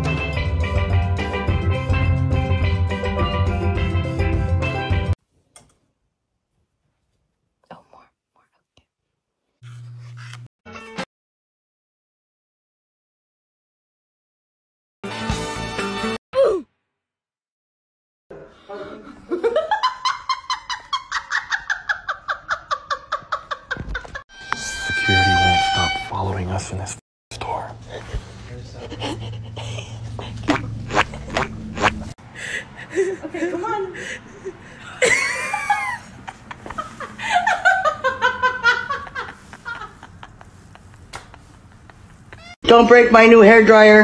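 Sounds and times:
woman laughing hard: 28.9 - 42.4.

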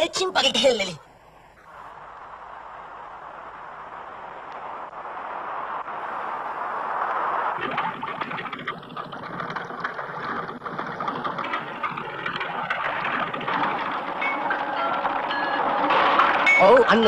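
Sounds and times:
steady high tone: 14.1 - 17.0.

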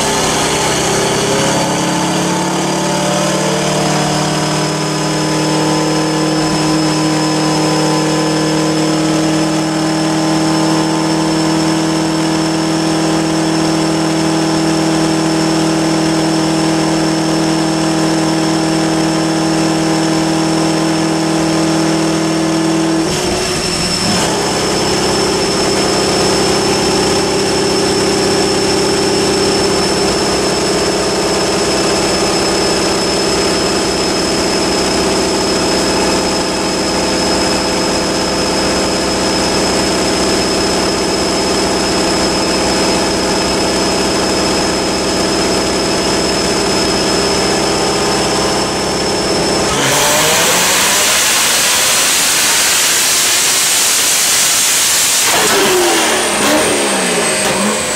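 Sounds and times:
car engine revving on dyno: 0.0 - 57.9
high whine: 0.0 - 57.9.

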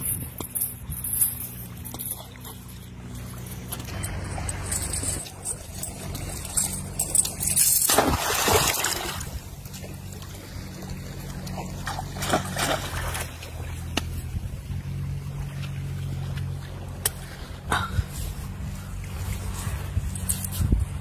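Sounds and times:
steady low hum: 0.0 - 21.0
small splashing: 1.4 - 17.5
bait splashing into water: 7.8 - 9.4, 11.5 - 14.2.

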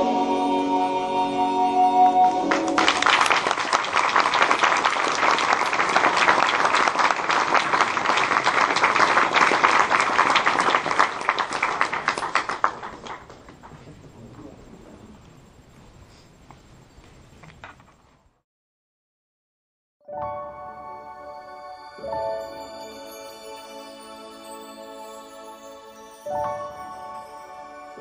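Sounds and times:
audience applause: 2.2 - 14.0.

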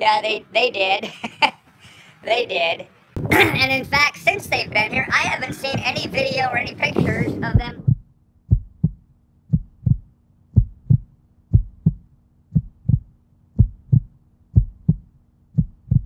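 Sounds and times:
heartbeat thumps: 3.2 - 16.0.

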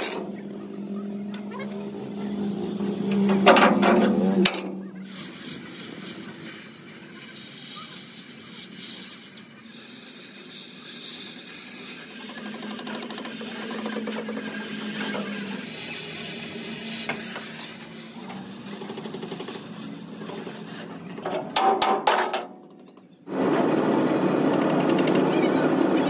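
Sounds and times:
cutting torch hissing: 4.9 - 21.1.

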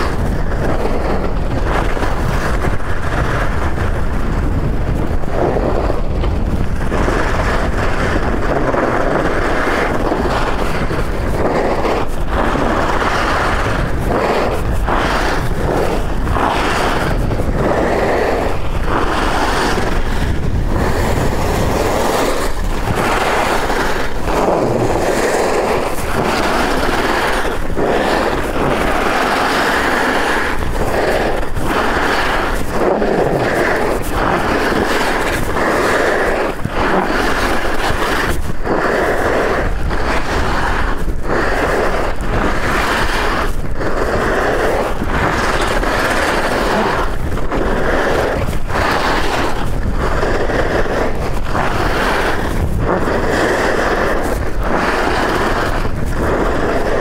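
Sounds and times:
skis scraping on icy snow: 0.0 - 57.0
wind rumble on microphone: 0.0 - 57.0.

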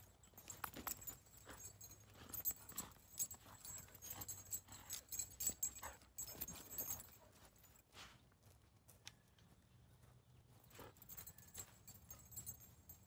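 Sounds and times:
footsteps on dry grass: 6.4 - 11.9.

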